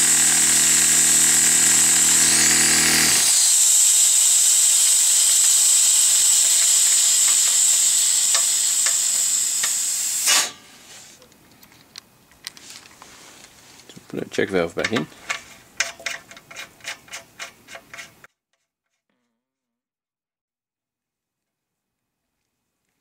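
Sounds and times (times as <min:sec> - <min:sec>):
air compressor motor running: 0:00.0 - 0:10.6
compressed air hissing: 0:03.2 - 0:11.2.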